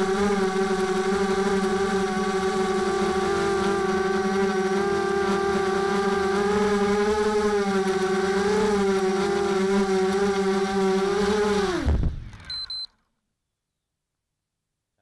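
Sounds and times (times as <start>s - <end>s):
quadcopter motors buzzing: 0.0s - 12.9s
short high beeps: 12.4s - 12.9s.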